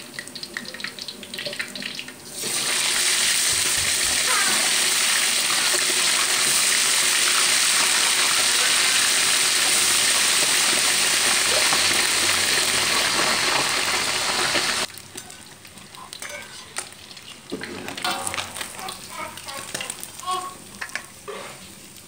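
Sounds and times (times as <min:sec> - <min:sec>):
fish deep-frying in hot oil: 0:00.0 - 0:22.0
spatula and strainer clinking: 0:15.1 - 0:16.9.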